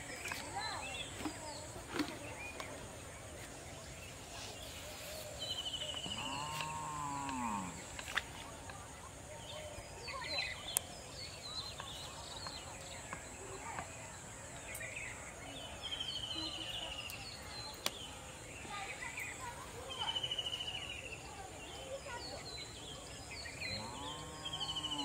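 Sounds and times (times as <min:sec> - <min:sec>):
birds chirping and trilling: 0:00.0 - 0:25.0
insect drone: 0:05.2 - 0:11.5.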